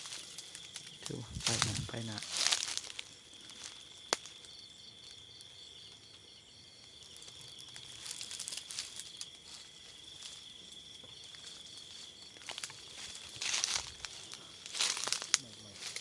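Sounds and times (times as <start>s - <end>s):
footsteps on dry grass and leaves: 0.0s - 4.4s, 7.0s - 16.0s
insects trilling: 0.0s - 16.0s.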